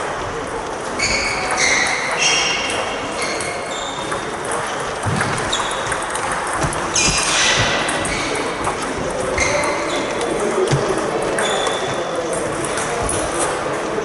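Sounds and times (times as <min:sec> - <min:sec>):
table tennis balls clicking: 0:01.5 - 0:13.6
short high squeaks: 0:05.4 - 0:06.0.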